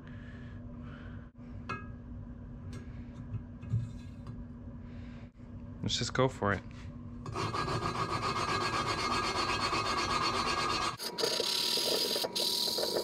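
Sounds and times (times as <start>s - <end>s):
valve grinding against seat: 7.3s - 13.0s.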